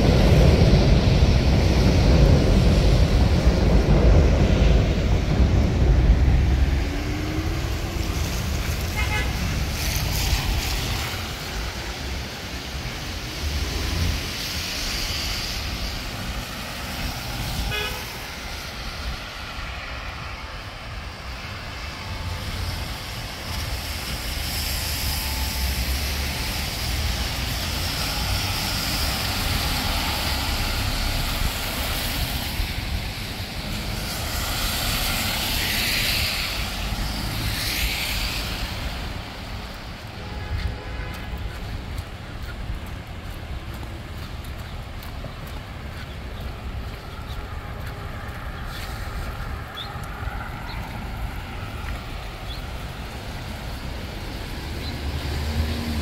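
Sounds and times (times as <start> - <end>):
cars passing on wet road: 0.0 - 56.0
low traffic rumble: 0.0 - 56.0
car horn toot: 8.9 - 9.4, 17.7 - 18.1.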